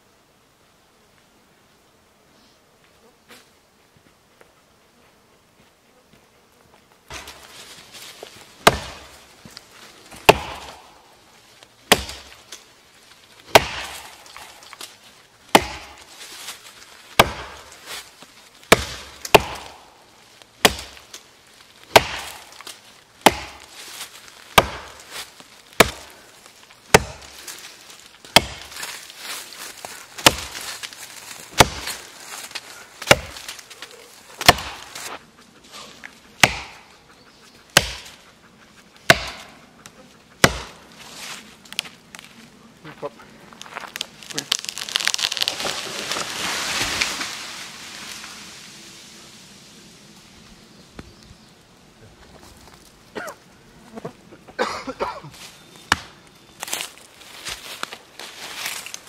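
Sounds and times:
axe chopping tree trunk: 0:07.1 - 0:09.2, 0:10.1 - 0:11.0, 0:11.8 - 0:12.6, 0:13.4 - 0:16.5, 0:17.1 - 0:18.1, 0:18.7 - 0:20.0, 0:20.6 - 0:21.2, 0:21.9 - 0:26.2, 0:26.9 - 0:27.6, 0:28.2 - 0:29.0, 0:30.2 - 0:33.6, 0:34.4 - 0:35.2, 0:36.4 - 0:36.9, 0:37.7 - 0:38.2, 0:39.0 - 0:39.6, 0:40.4 - 0:40.8, 0:55.9 - 0:56.8.

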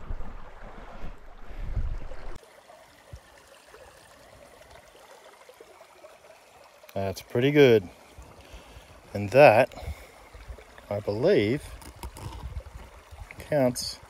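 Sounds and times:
wind rumbling on microphone: 0:00.0 - 0:02.4, 0:11.6 - 0:13.4
water trickling: 0:02.4 - 0:14.0.

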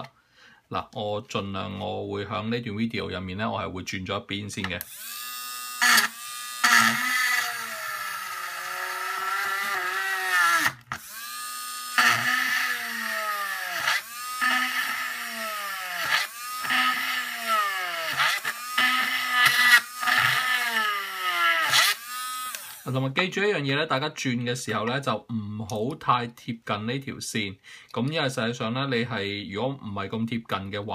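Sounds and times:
rotary tool drilling plastic: 0:04.8 - 0:22.9.

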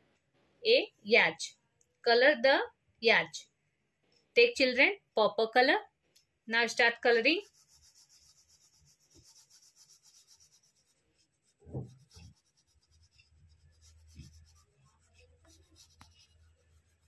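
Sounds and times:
crayon scribbling on paper: 0:07.4 - 0:17.0.

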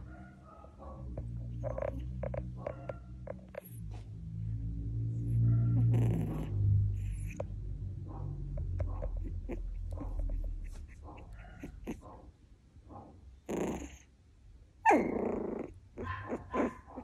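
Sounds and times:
puppy crying: 0:14.8 - 0:17.0
puppy whimpering: 0:14.8 - 0:17.0.

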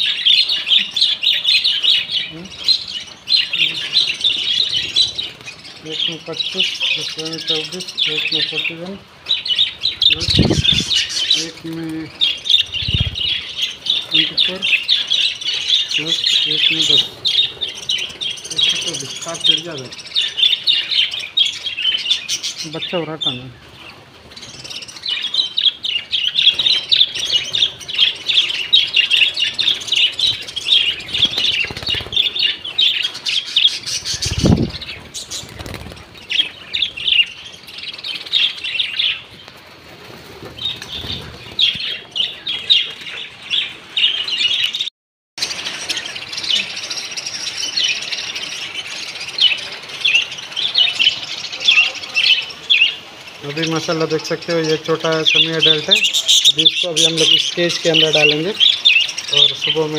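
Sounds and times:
budgerigars chirping: 0:00.0 - 0:39.4, 0:40.5 - 0:59.9
wings flapping: 0:03.5 - 0:05.8, 0:09.8 - 0:19.6, 0:26.3 - 0:38.4, 0:39.0 - 0:43.2.

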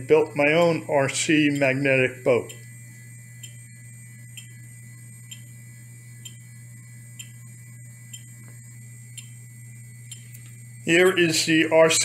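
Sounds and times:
steady low hum: 0:00.0 - 0:12.0
faint regular ticking: 0:00.4 - 0:05.5, 0:06.2 - 0:07.4, 0:08.1 - 0:09.4, 0:10.0 - 0:11.2.

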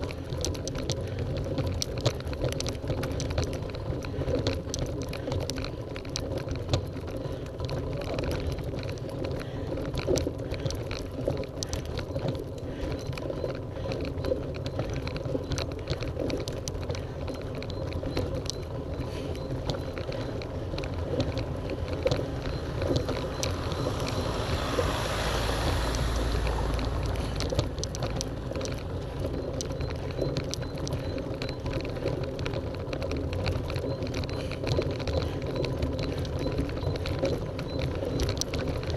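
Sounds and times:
bicycle rattling over cobblestones: 0:00.0 - 0:38.9
wind buffeting microphone: 0:19.3 - 0:31.2.

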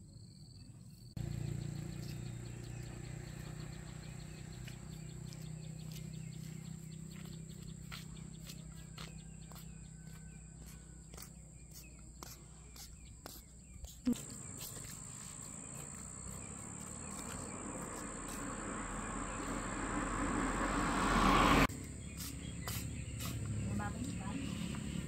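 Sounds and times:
car approaching on road: 0:01.2 - 0:11.7, 0:14.2 - 0:25.0
high insect whine: 0:14.1 - 0:23.7.

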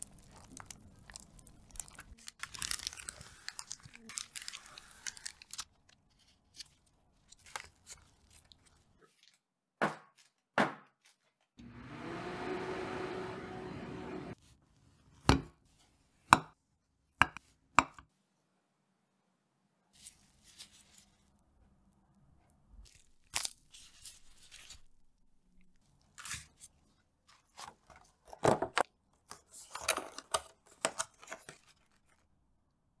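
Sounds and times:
plastic crinkles and clicks: 0:00.0 - 0:09.4, 0:29.2 - 0:32.3.

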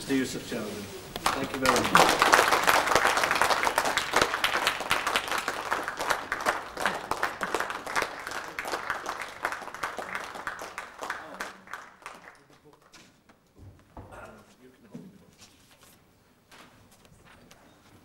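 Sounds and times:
audience applauding: 0:01.1 - 0:13.0.

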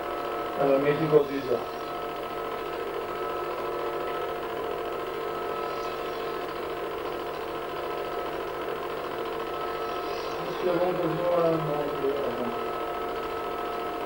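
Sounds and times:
film projector humming: 0:00.0 - 0:14.0.

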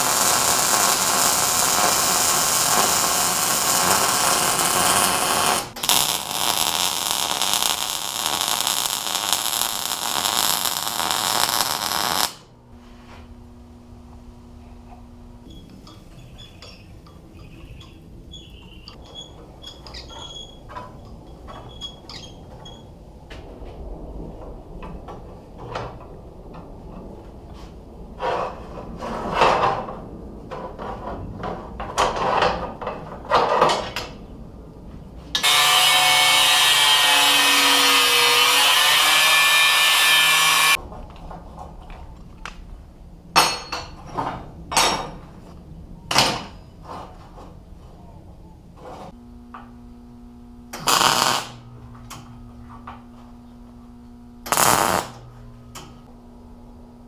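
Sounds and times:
power tool running: 0:35.4 - 0:40.8.

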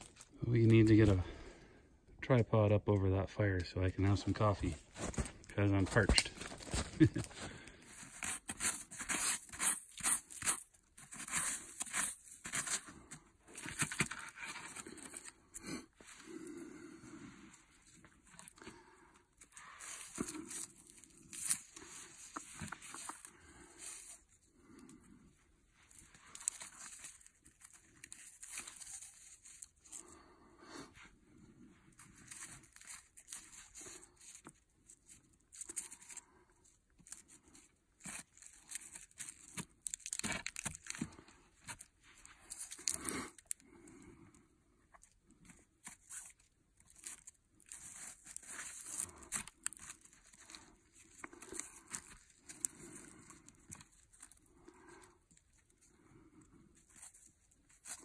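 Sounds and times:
branches and brush crunching: 0:04.0 - 0:09.0.

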